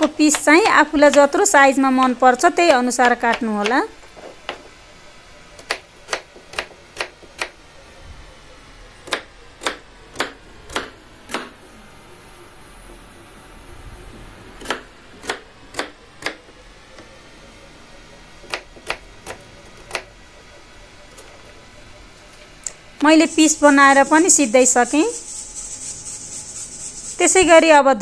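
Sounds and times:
knife chopping on cutting board: 0.0s - 1.3s.

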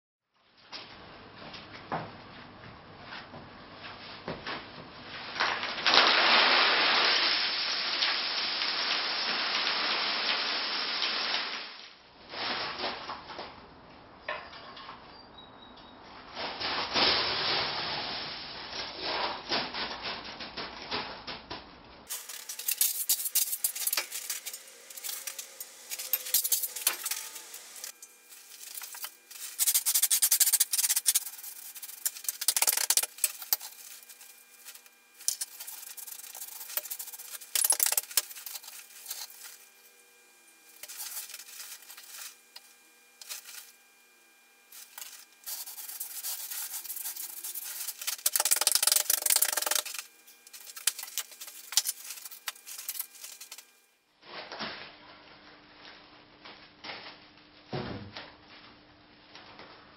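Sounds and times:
faint steady hum: 22.0s - 54.1s.

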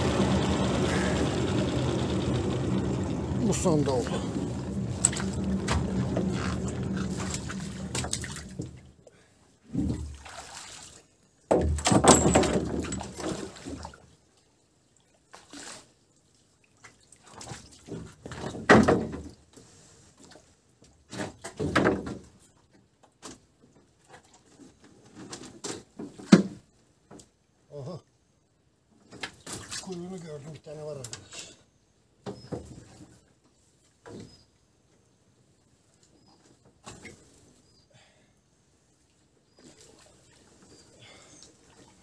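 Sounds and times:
steady low hum: 0.0s - 8.8s
water sloshing and splashing: 0.0s - 9.1s, 9.7s - 19.4s, 39.4s - 42.0s.

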